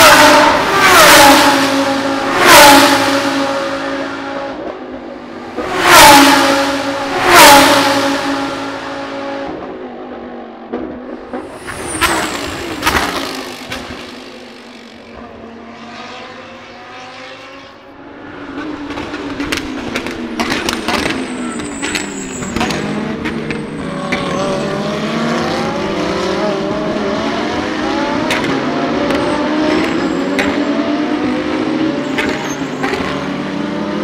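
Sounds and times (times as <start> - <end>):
race cars screaming past: 0.0 - 4.6, 5.5 - 9.6, 11.4 - 34.0
engines accelerating through gears: 0.0 - 34.0
exhaust cracks: 12.0 - 15.0.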